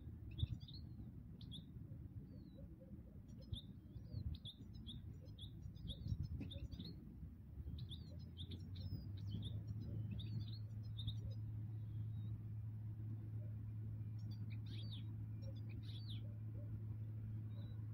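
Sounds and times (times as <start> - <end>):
low wind rumble: 0.0 - 17.9
steady low hum: 0.0 - 17.9
finches twittering: 3.3 - 7.0, 14.1 - 16.8.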